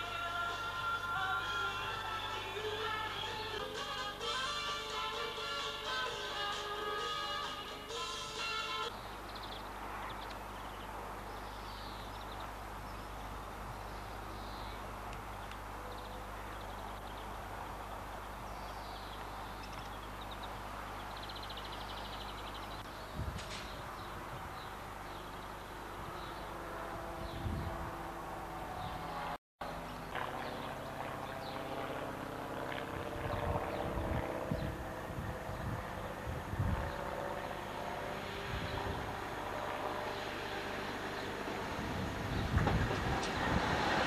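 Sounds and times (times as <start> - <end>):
small birds chirping: 8.8 - 26.6
steady low hum: 8.9 - 44.0.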